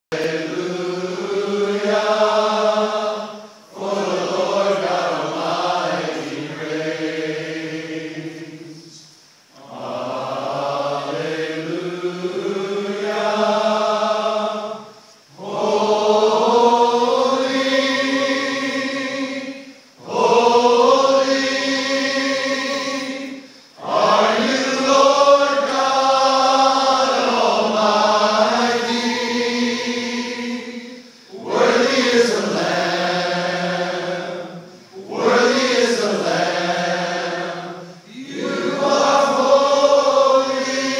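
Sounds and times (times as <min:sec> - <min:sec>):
men singing worship song: 0:00.1 - 0:40.9.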